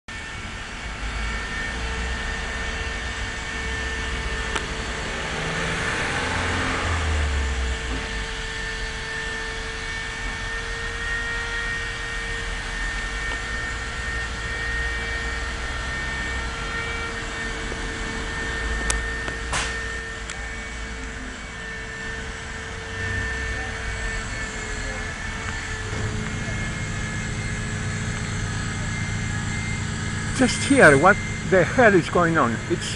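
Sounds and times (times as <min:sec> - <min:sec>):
air compressor running: 0:00.1 - 0:32.9
steady buzzing: 0:00.1 - 0:32.9.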